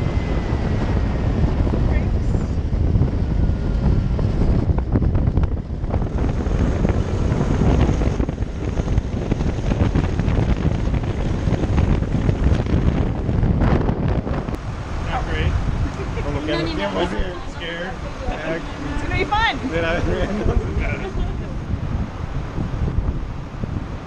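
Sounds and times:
go-kart running noise: 0:00.0 - 0:24.0
wind buffeting microphone: 0:00.0 - 0:24.0.

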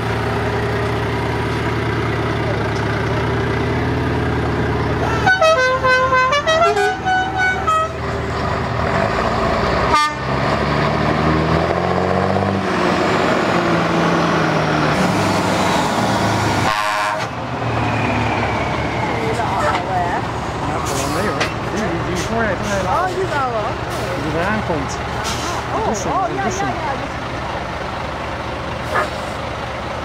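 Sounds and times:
diesel drone of passing trucks: 0:00.0 - 0:30.0
truck engine accelerating: 0:00.0 - 0:30.0
musical air horn tune: 0:05.0 - 0:08.0, 0:09.9 - 0:10.3, 0:16.6 - 0:17.3.

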